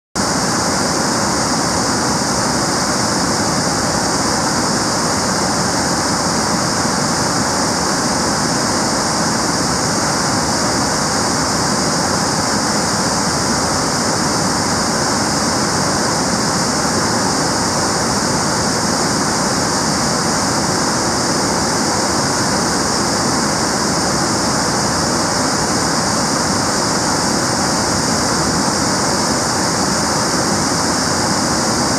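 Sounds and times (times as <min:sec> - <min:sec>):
whitewater rushing over rocky falls: 0:00.2 - 0:31.9.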